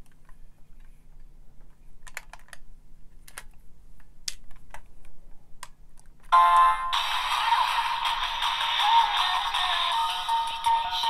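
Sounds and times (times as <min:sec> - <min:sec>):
music from small speaker: 0:06.4 - 0:11.0.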